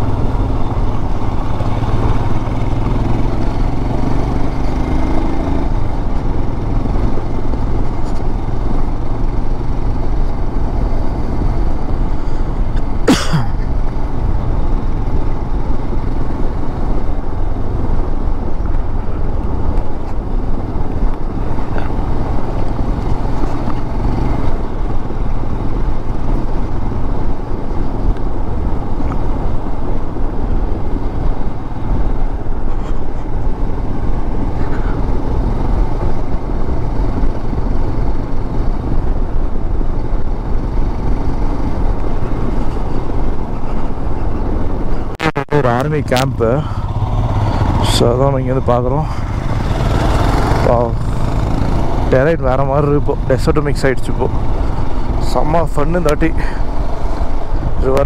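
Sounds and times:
motorcycle engine: 0:00.0 - 0:58.0
wind rumble: 0:00.0 - 0:58.0.

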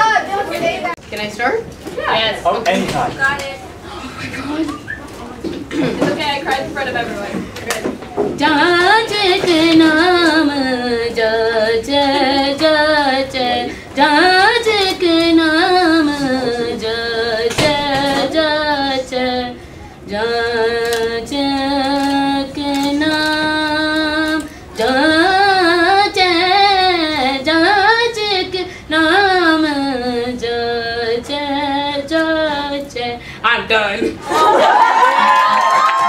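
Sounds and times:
girl singing unaccompanied: 0:08.3 - 0:33.3.

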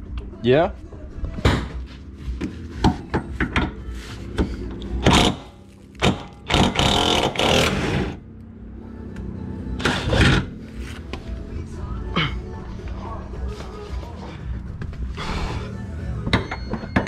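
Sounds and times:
background music: 0:00.0 - 0:17.0
power tool buzzing: 0:05.0 - 0:08.2.

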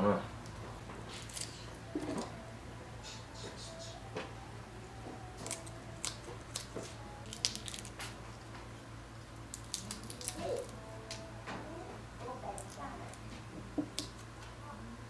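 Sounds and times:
scissors snipping shrimp shells: 0:01.1 - 0:01.6, 0:05.4 - 0:08.2, 0:09.5 - 0:11.2.

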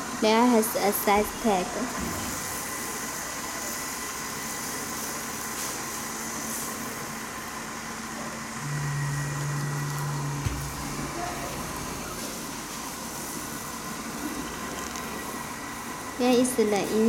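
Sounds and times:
steady mechanical hum: 0:00.0 - 0:17.0
low motor drone: 0:08.6 - 0:12.8.

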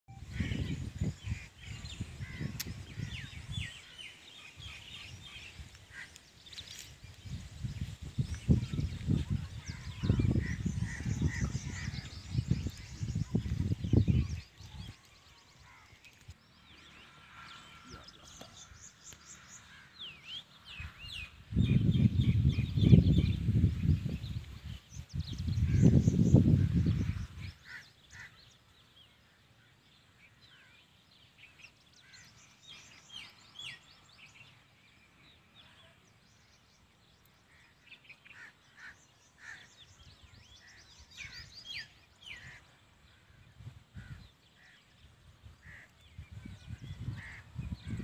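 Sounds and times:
wind rumbling on microphone: 0:00.1 - 0:16.6, 0:20.6 - 0:28.4, 0:39.4 - 0:48.0
small birds chirping: 0:00.1 - 0:48.0.

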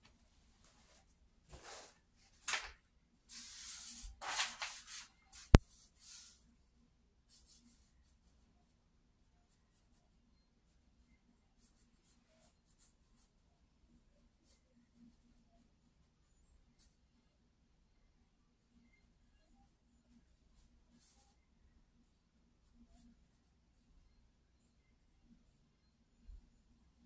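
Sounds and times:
hands rustling on paper: 0:00.0 - 0:06.3.

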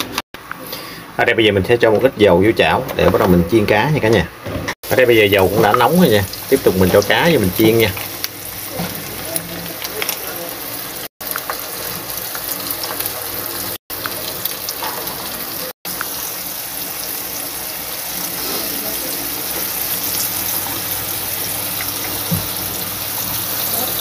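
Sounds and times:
fish sizzling in hot oil: 0:04.8 - 0:24.0.

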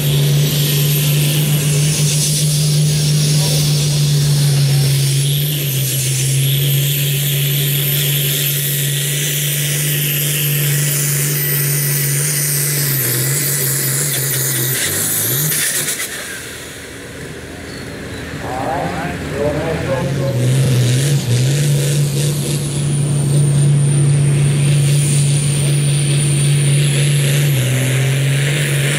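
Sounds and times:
thin high turbo whistle: 0:00.0 - 0:16.5
tractor diesel engine under load: 0:00.0 - 0:28.9.

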